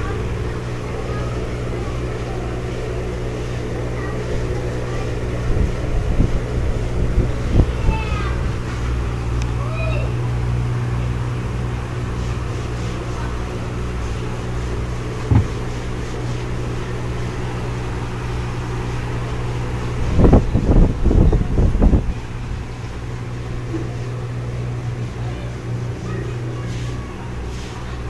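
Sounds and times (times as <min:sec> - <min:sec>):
aquarium equipment humming: 0:00.0 - 0:28.0
knock: 0:15.3 - 0:15.6
low bumps: 0:15.3 - 0:15.7.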